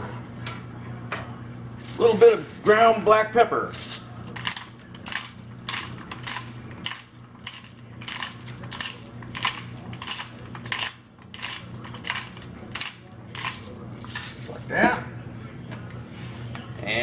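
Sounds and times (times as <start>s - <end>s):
pepper mill grinding: 3.7s - 14.6s.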